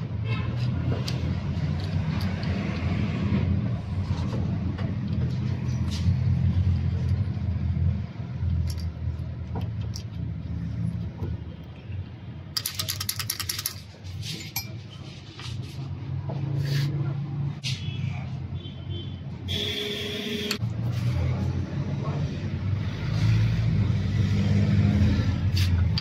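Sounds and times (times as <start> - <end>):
metal parts clinking and rattling: 8.4 - 10.2, 12.5 - 14.9
rapid clicks: 12.6 - 13.8.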